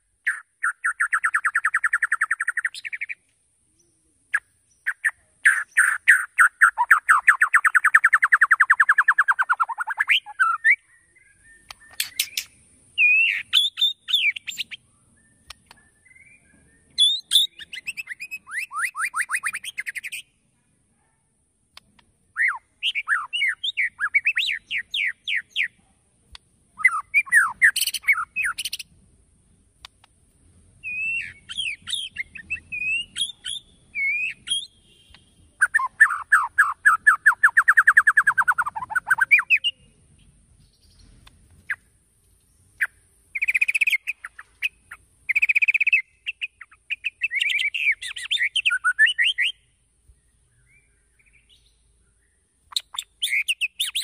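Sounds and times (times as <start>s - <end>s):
bird singing trills and whistles: 0.2s - 3.2s, 3.8s - 20.3s, 22.4s - 25.8s, 26.8s - 28.9s, 30.8s - 54.0s.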